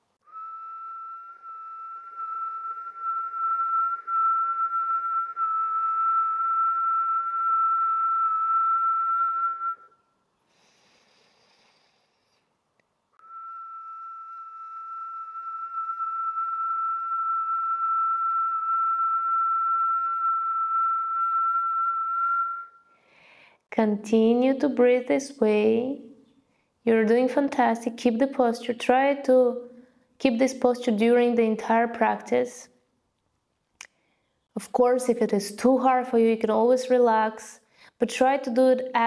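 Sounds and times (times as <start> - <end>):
woman whistling steady note: 0.2 - 10.1, 13.2 - 23.0
faint breath in through nose: 10.4 - 12.6, 22.9 - 23.7, 37.6 - 38.0.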